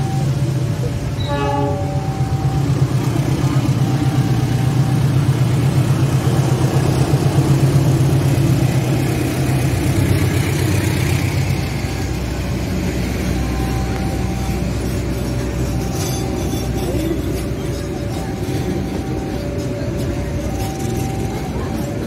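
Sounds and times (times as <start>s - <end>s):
diesel locomotive engine droning: 0.0s - 22.0s
train coaches rumbling on rails: 0.0s - 22.0s
train horn: 1.1s - 3.0s.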